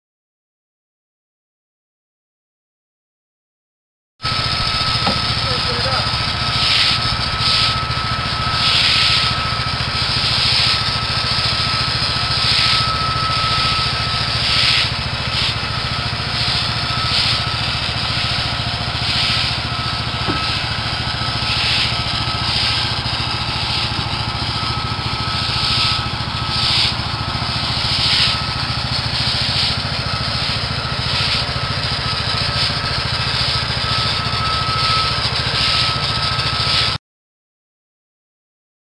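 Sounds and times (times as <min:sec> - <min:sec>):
small gas engine running: 0:04.2 - 0:37.0
hissing water spray: 0:04.3 - 0:34.2.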